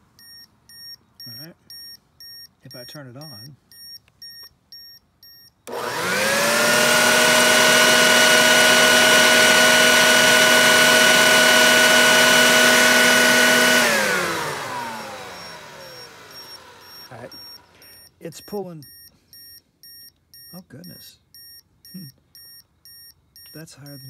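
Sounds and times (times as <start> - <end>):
vacuum cleaner motor whine: 5.7 - 18.0.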